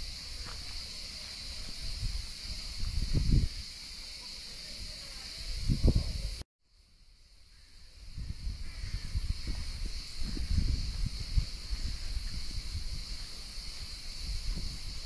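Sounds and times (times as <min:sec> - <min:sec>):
steady high hiss: 0:00.0 - 0:15.0
wind buffeting microphone: 0:01.4 - 0:03.7, 0:05.5 - 0:06.4, 0:08.0 - 0:15.0.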